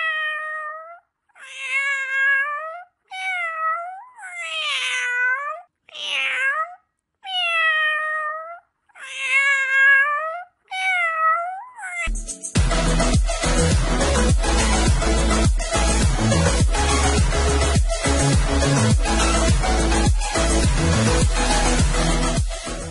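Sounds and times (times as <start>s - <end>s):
cat meowing: 0.0s - 12.2s.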